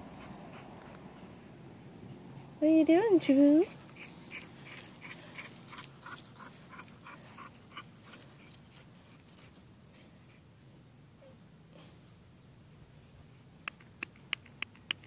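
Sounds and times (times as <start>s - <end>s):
dog panting: 0.0s - 2.6s, 3.6s - 10.5s.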